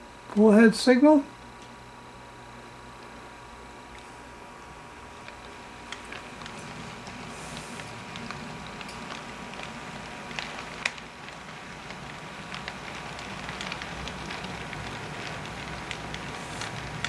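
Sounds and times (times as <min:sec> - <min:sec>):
low motor hum: 0:01.3 - 0:17.0
model train wheels clicking: 0:05.2 - 0:17.0.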